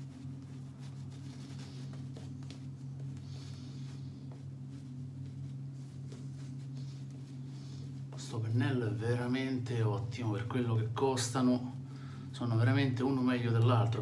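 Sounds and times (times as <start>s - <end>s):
shaving brush swishing on stubble: 0.0s - 11.6s
steady low hum: 0.0s - 14.0s.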